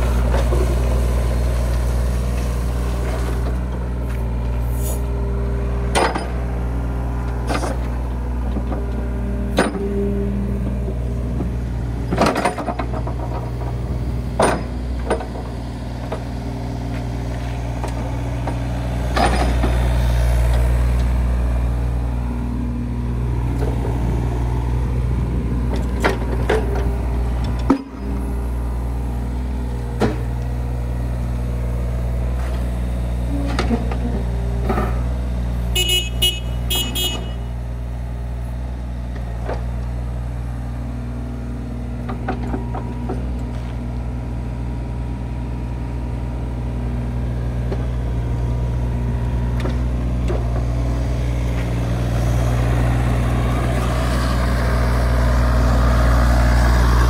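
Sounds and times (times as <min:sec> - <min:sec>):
excavator diesel engine running: 0:00.0 - 0:57.0
machine clunks and knocks: 0:05.9 - 0:06.5, 0:07.4 - 0:10.1, 0:11.3 - 0:16.3, 0:17.8 - 0:19.9, 0:25.7 - 0:28.2, 0:29.9 - 0:30.5.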